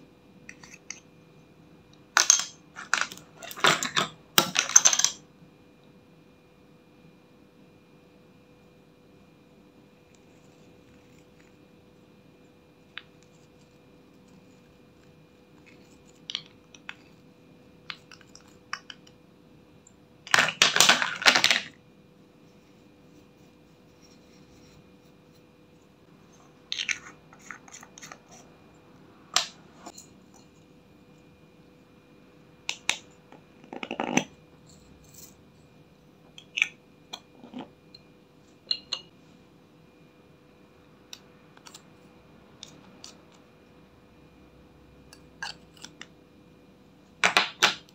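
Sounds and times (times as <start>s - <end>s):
makeup pots clicking and tapping: 2.2s - 5.2s, 17.8s - 19.2s, 32.7s - 34.3s, 36.3s - 39.1s.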